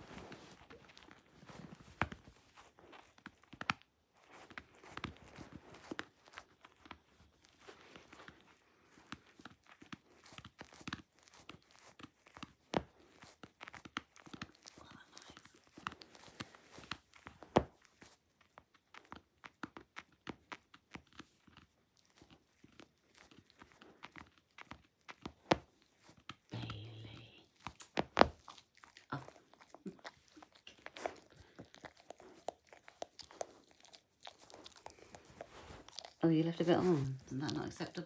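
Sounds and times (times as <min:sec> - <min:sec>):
dog chewing toy: 0:27.5 - 0:38.0.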